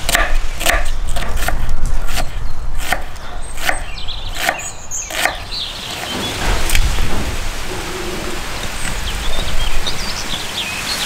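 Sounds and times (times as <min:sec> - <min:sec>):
knife chopping on wooden board: 0:00.0 - 0:06.2.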